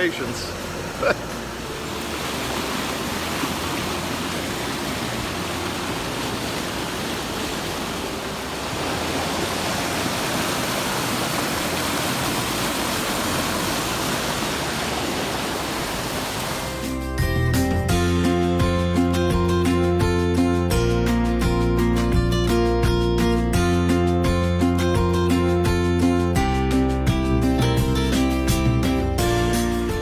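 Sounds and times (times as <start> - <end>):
river rushing over rocks: 0.0 - 16.8.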